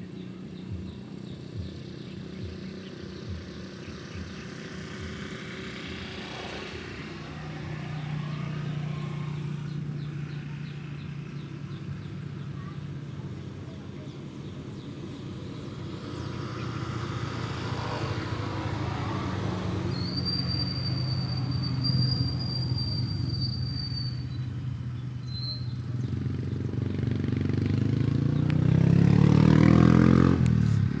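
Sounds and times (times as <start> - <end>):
motorcycle engines passing: 0.0 - 31.0
high steady whistling tone: 19.8 - 24.6.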